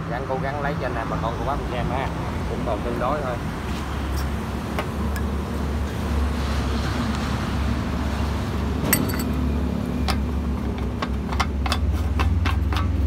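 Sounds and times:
metallic clicks and clinks: 0:08.9 - 0:09.4.

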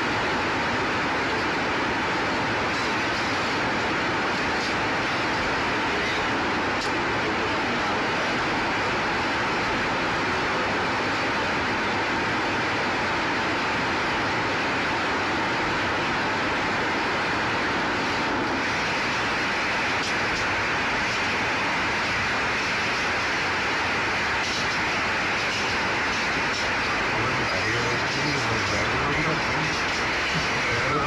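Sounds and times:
steady rushing noise: 0:00.0 - 0:31.0.

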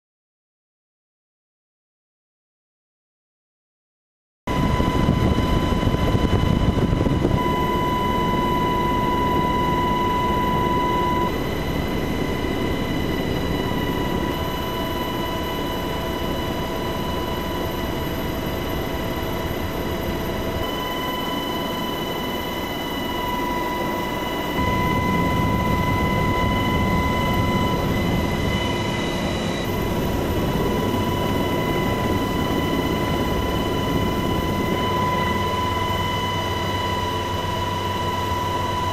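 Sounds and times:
helicopter engine and rotor noise: 0:04.5 - 0:38.9
steady high turbine whine: 0:04.5 - 0:38.9.

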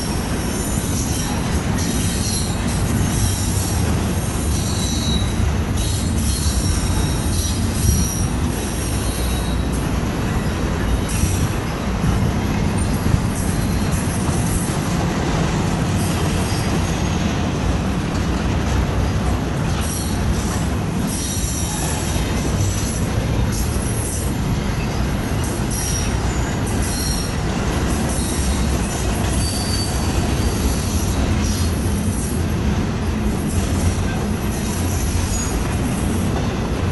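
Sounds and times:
high-pitched wheel squeals: 0:00.0 - 0:03.8, 0:04.4 - 0:09.8, 0:25.7 - 0:27.4, 0:28.1 - 0:31.7
steel wheels rumbling on rail: 0:00.0 - 0:36.9
wind noise: 0:00.0 - 0:36.9.

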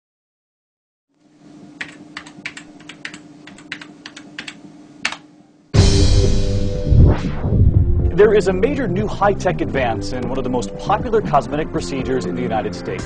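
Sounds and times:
faint steady hum: 0:01.1 - 0:05.8
keyboard typing: 0:01.8 - 0:05.3.

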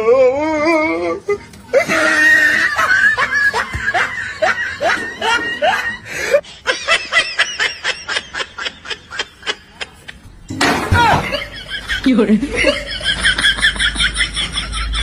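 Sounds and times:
person laughing: 0:01.7 - 0:10.1.

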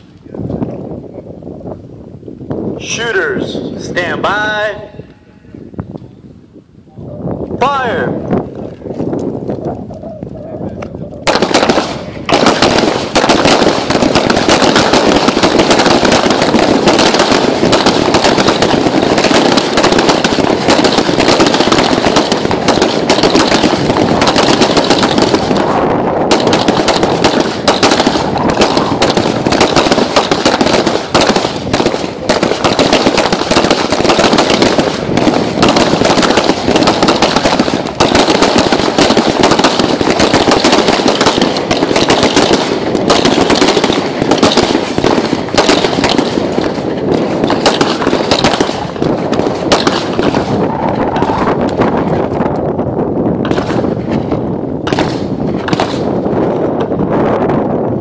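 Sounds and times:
pistols firing rapidly: 0:11.2 - 0:52.2, 0:53.3 - 0:56.6.

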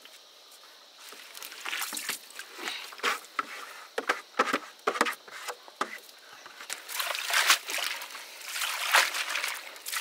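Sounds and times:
water sloshing and splashing: 0:01.2 - 0:03.3, 0:06.6 - 0:10.0.

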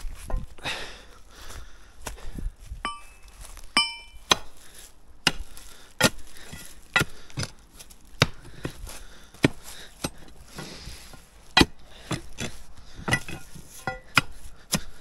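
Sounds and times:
metallic clink: 0:02.8 - 0:04.2
hammer striking stone: 0:03.8 - 0:04.4.

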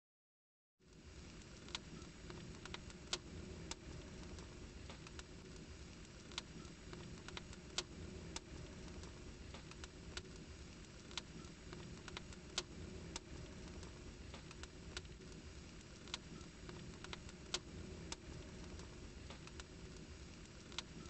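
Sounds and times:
fire crackling and popping: 0:00.8 - 0:21.0
low steady rumble: 0:00.9 - 0:21.0.

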